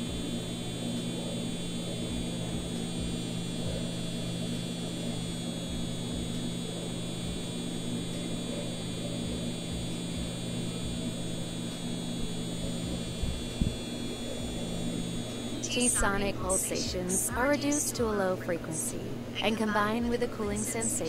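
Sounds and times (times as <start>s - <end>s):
electric hum with high whine: 0.0s - 21.0s.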